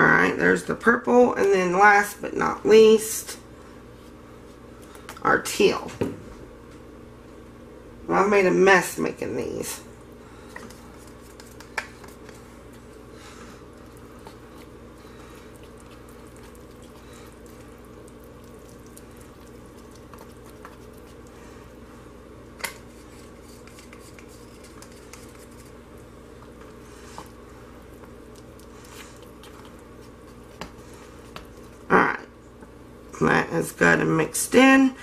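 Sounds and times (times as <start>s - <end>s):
soft stirring of thick batter: 9.9s - 33.1s.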